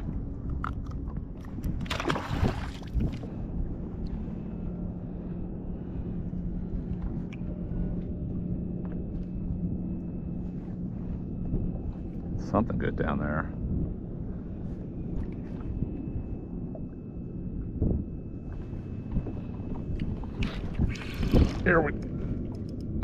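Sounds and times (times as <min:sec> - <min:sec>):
water lapping against kayak: 0:00.0 - 0:09.6, 0:17.6 - 0:22.7
steady low hum: 0:00.0 - 0:23.0.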